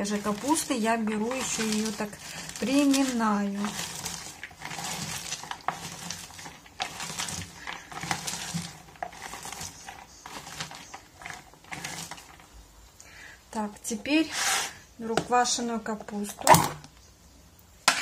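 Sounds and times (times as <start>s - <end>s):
cabbage crunching and rustling: 0.0s - 12.6s
sharp crackles: 0.0s - 13.2s.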